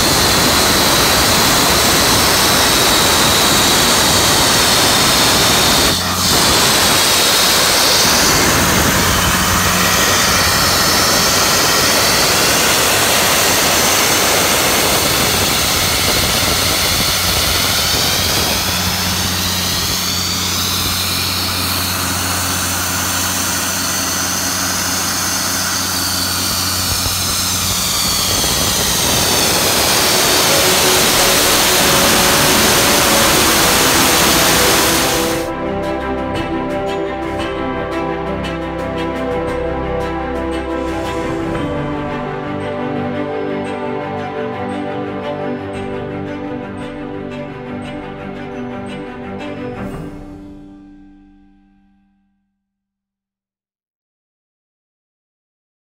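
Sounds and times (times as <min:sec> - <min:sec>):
air compressor diesel engine running: 0:00.0 - 0:35.6.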